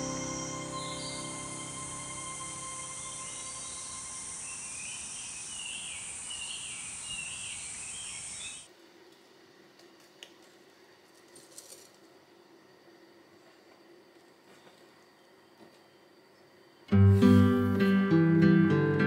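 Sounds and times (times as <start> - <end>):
insect chorus shrilling: 0.0 - 8.7
warbling insect call: 0.0 - 8.7.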